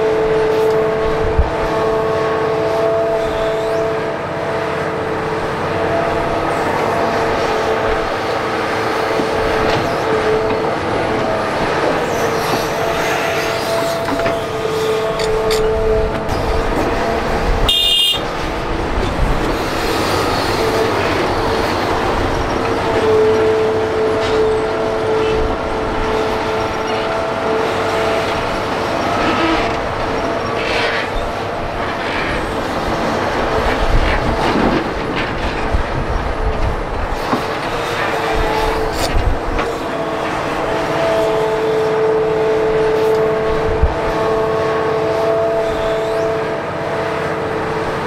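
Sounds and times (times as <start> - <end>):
excavator engine whining: 0.0 - 48.0
clunks and rattles: 33.6 - 38.1.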